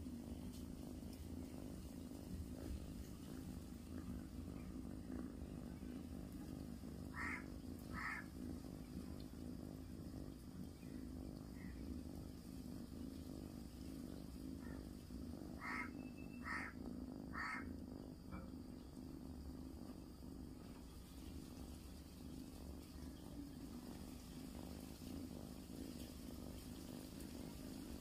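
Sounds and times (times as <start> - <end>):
steady low hum: 0.0 - 28.0
short animal calls: 7.1 - 8.2, 15.6 - 17.7.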